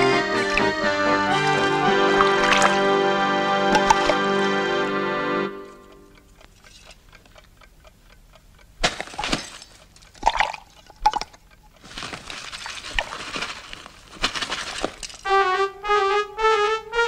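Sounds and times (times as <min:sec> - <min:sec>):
liquid plink: 0:02.2 - 0:02.8, 0:03.7 - 0:04.2.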